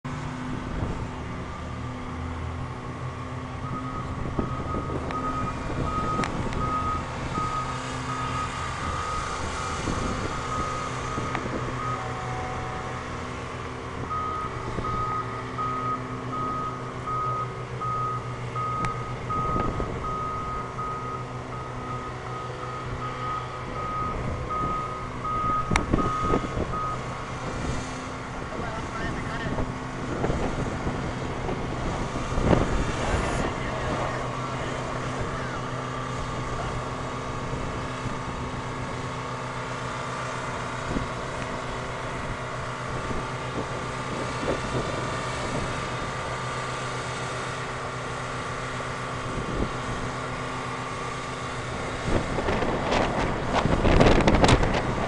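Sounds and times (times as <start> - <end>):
diesel engine running: 0.0 - 55.0
backup alarm beeping: 14.1 - 27.0.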